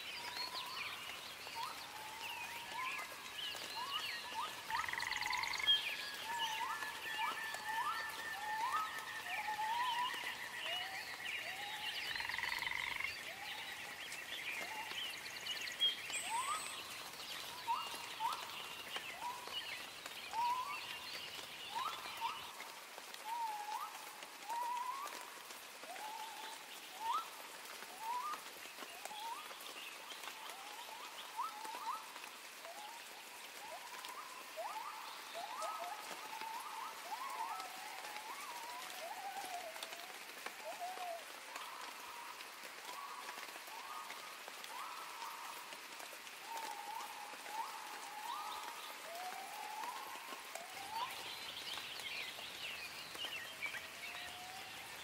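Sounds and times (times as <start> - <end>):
higher twittering calls: 1.5 - 19.6.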